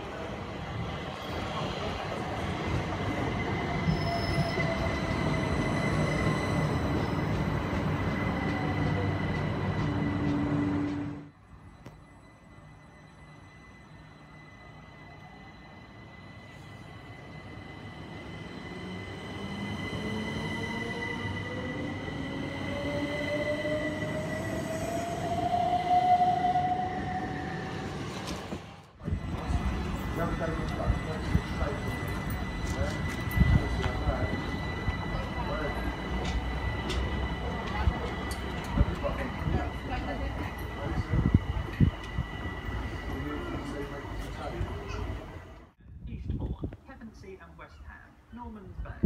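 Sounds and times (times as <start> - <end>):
train wheels rumbling on rails: 0.0 - 11.3, 26.6 - 45.7
high wheel squeal: 3.7 - 7.4
steady high tone: 29.1 - 45.4.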